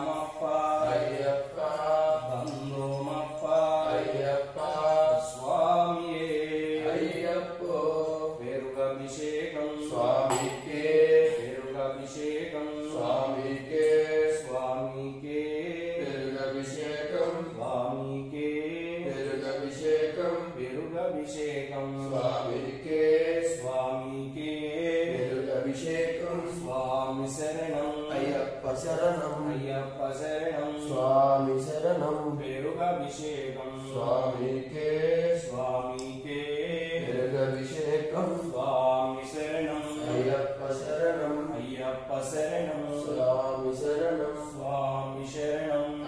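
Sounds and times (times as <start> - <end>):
man chanting: 0.0 - 46.0.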